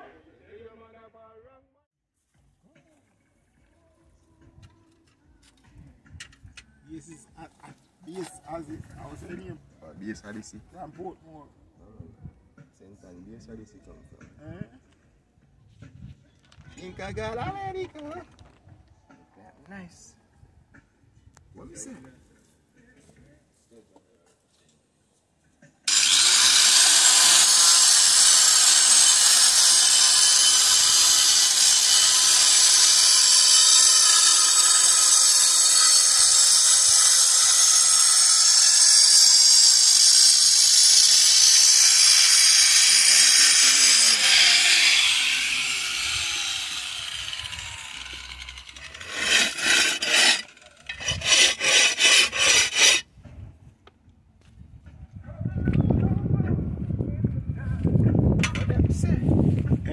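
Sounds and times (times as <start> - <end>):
power tool cutting: 25.9 - 53.0.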